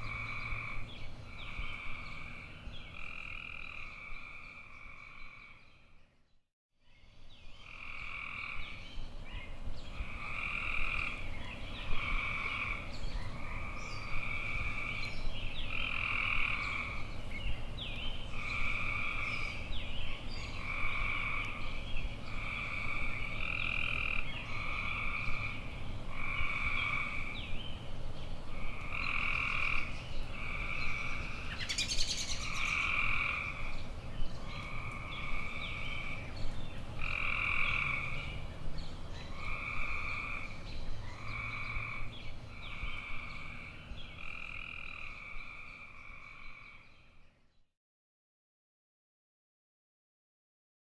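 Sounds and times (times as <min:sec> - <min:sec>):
frogs calling: 0:00.0 - 0:05.7, 0:07.6 - 0:08.8, 0:10.0 - 0:17.1, 0:18.3 - 0:19.7, 0:20.5 - 0:21.7, 0:22.3 - 0:27.5, 0:28.5 - 0:33.8, 0:34.4 - 0:36.3, 0:37.0 - 0:38.4, 0:39.2 - 0:47.1.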